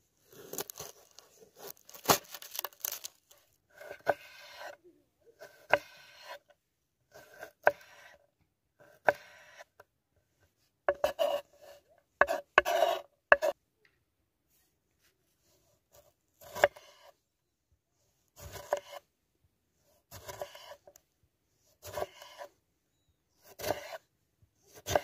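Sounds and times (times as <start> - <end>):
knife chopping on wooden board: 5.4 - 6.4, 9.0 - 9.6, 10.9 - 11.4, 12.2 - 13.6, 16.4 - 17.1, 18.4 - 19.0, 20.1 - 20.8, 21.8 - 22.5, 23.5 - 24.0, 24.7 - 25.0.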